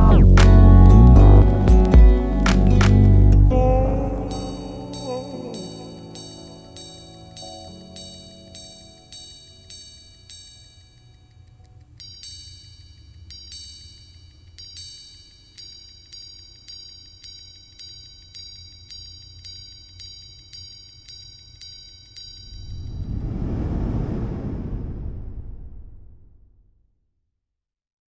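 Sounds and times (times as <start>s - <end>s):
watch chiming on gongs: 4.3s - 11.3s, 12.0s - 22.6s.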